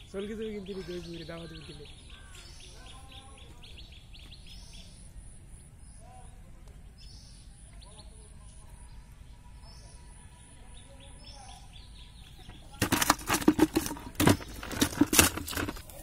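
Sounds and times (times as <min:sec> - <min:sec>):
small birds chirping: 0:00.0 - 0:16.0
fish flapping and splashing: 0:12.8 - 0:16.0.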